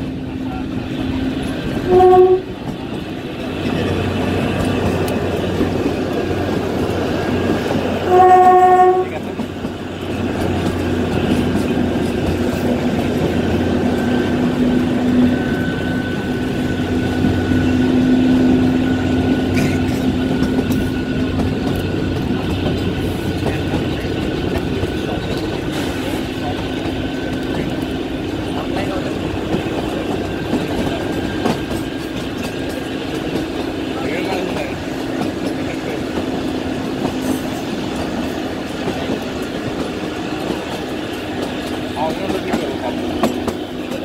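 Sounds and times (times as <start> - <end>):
train engine droning: 0.0 - 44.0
wheels clattering on rails: 0.0 - 44.0
train horn: 1.8 - 2.7, 8.0 - 9.4.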